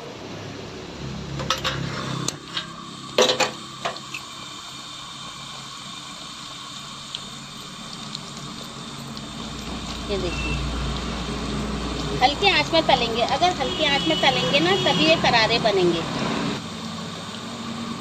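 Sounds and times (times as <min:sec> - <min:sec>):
dough deep-frying in oil: 0:00.0 - 0:18.0.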